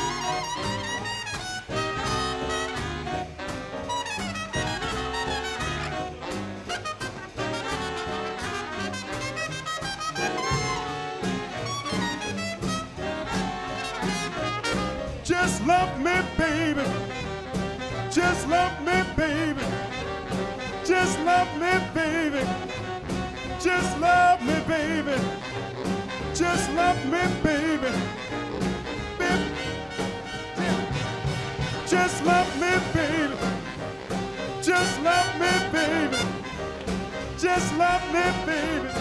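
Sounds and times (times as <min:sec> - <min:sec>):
swing beat on drums: 0:00.0 - 0:39.0
swing big band playing: 0:00.0 - 0:39.0.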